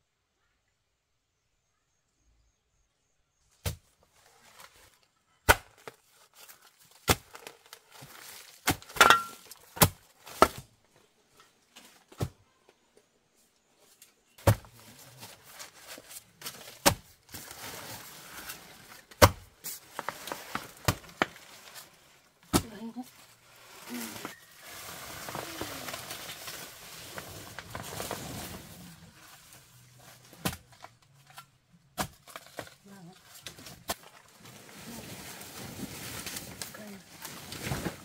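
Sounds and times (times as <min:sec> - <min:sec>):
rustling and scraping: 0:03.8 - 0:05.1, 0:05.8 - 0:38.0.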